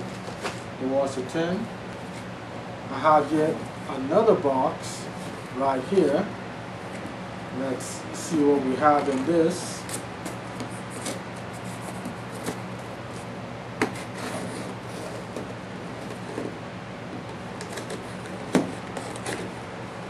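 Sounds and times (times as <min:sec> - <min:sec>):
cardboard scraping and rustling: 0:08.8 - 0:16.6, 0:17.2 - 0:19.6
packing tape cut and peeled: 0:17.3 - 0:19.6.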